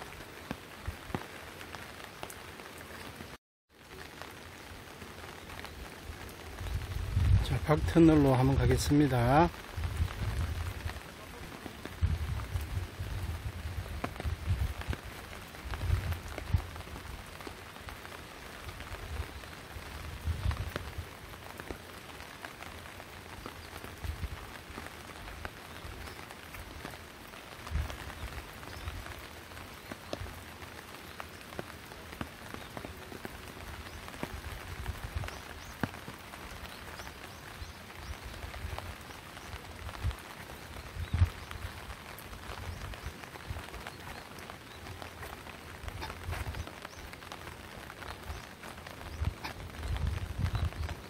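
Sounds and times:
raindrops ticking close by: 0.0s - 51.0s
steady rain falling: 0.0s - 51.0s.

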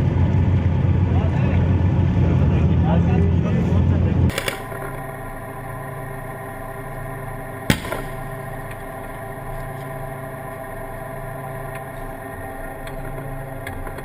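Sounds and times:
diesel engine droning: 0.0s - 14.0s
sharp bang: 7.7s - 8.4s.

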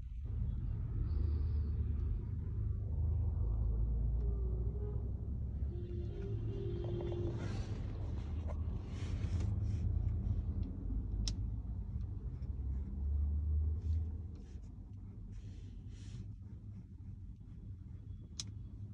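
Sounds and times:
car engine idling: 0.0s - 18.9s.

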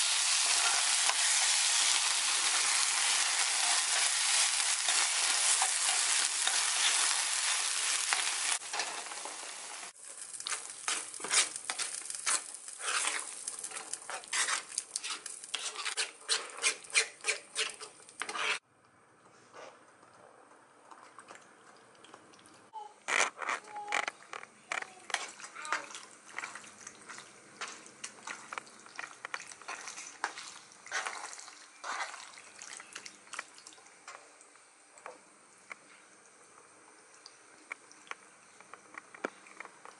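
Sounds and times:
food sizzling in frying pan: 0.0s - 16.1s
fork scraping against pan: 10.5s - 18.6s.

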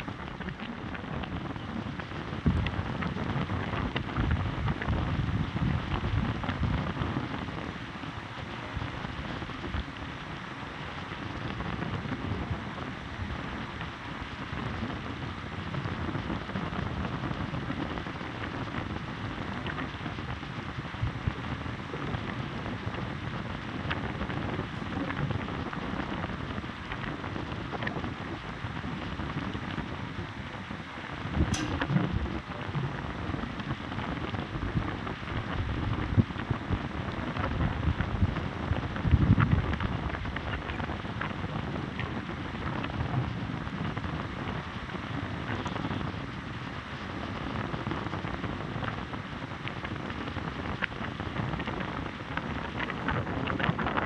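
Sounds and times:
heavy rain: 0.0s - 54.0s
low rumble: 0.0s - 54.0s
raindrops clicking: 0.0s - 54.0s.

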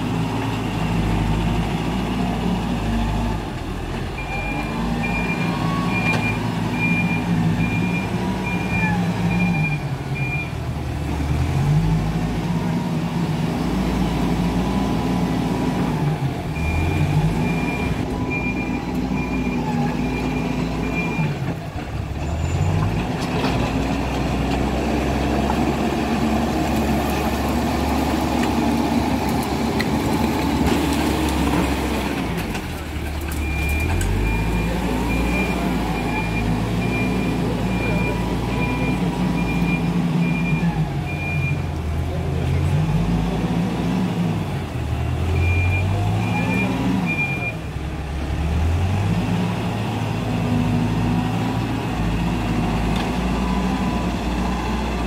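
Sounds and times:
diesel engine revving: 0.0s - 55.0s
reversing alarm beeping: 4.2s - 10.5s, 16.6s - 21.3s, 33.4s - 41.6s.

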